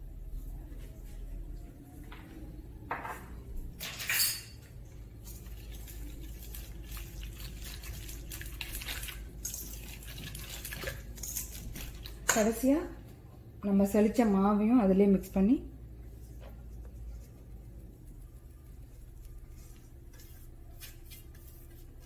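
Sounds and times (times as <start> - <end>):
whisk beating batter in metal bowl: 5.2 - 12.2.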